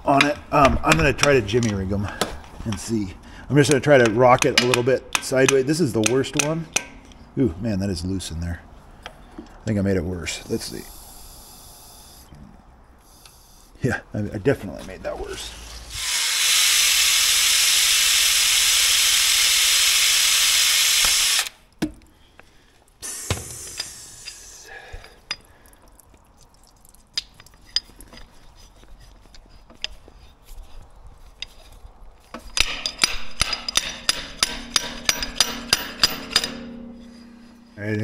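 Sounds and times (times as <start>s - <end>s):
water spraying with hiss: 23.0s - 24.7s.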